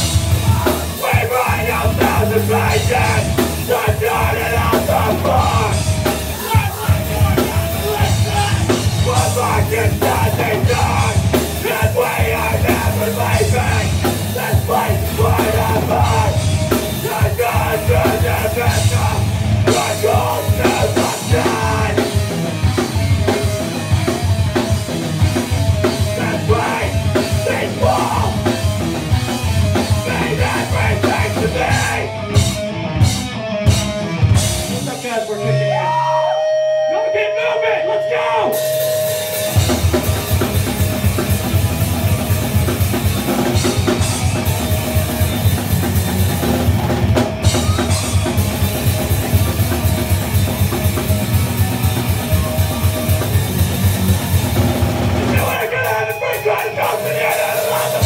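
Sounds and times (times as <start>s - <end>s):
pounding drum kit: 0.0s - 35.4s, 38.2s - 58.0s
bass guitar: 0.0s - 58.0s
electric guitar: 0.0s - 58.0s
yelled vocals: 0.0s - 58.0s.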